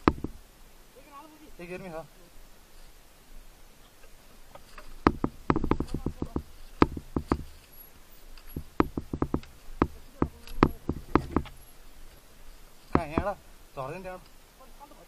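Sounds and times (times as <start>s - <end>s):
motorcycle knocking over rough trail: 0.0s - 0.4s, 4.8s - 7.7s, 8.4s - 11.7s, 12.9s - 13.4s.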